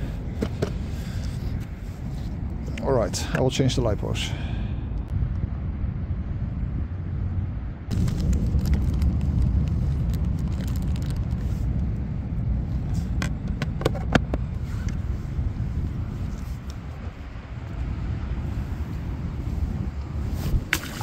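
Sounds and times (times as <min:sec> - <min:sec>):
steady low rumble: 0:00.0 - 0:21.0
plastic crinkling: 0:07.9 - 0:11.4.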